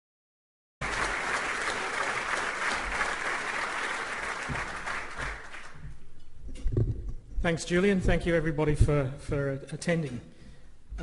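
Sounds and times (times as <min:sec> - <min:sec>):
audience applauding: 0:00.8 - 0:06.0.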